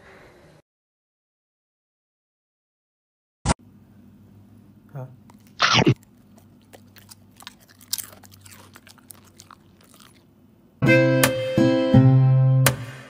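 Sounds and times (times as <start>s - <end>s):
dog chewing crunchy snack: 5.2s - 10.4s.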